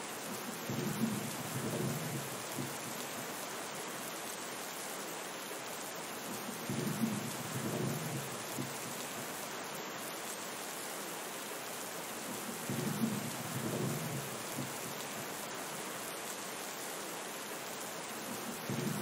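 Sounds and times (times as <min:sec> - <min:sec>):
heavy rain falling: 0:00.0 - 0:19.0
thunder rolling: 0:18.7 - 0:19.0.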